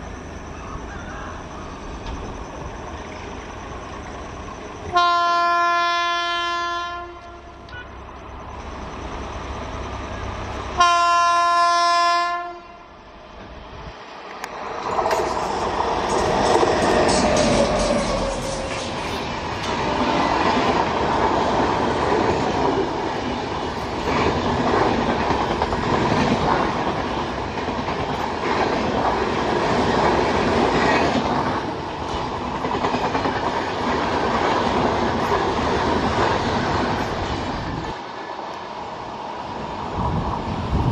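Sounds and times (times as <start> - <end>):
train passing at speed: 0.0 - 40.9
wheels clacking over rail joints: 14.4 - 37.9.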